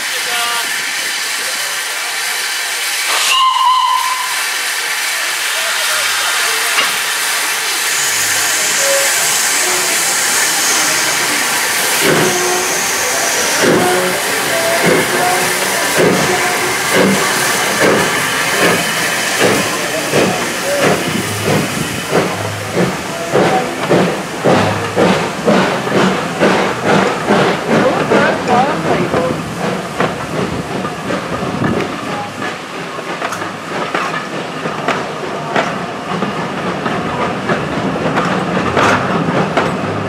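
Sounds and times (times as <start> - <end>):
steam hissing: 0.0 - 40.0
steam locomotive exhaust beats: 2.7 - 40.0.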